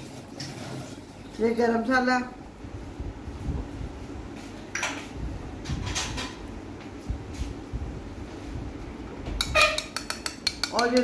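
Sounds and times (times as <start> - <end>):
light kitchen rustles and knocks: 3.3 - 10.0
kitchenware clatter: 4.7 - 6.4, 9.4 - 11.0.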